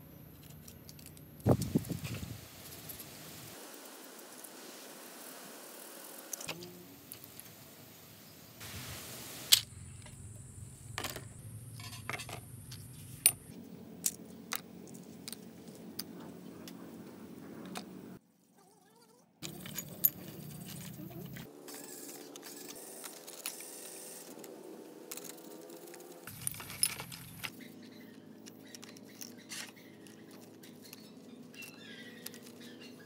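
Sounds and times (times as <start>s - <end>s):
metal parts dropped into plastic tray: 11.0s - 12.4s, 26.3s - 27.5s
metal parts clinking and clattering: 11.8s - 13.4s, 19.4s - 21.5s, 25.1s - 27.5s.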